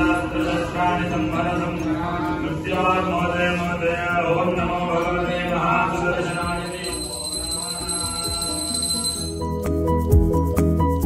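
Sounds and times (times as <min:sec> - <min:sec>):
priest chanting: 0:00.0 - 0:09.2
high ringing tone: 0:06.2 - 0:09.7.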